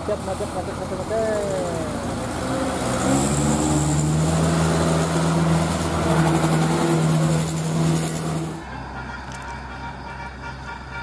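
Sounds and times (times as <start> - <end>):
bus horn long low note: 8.3 - 11.0.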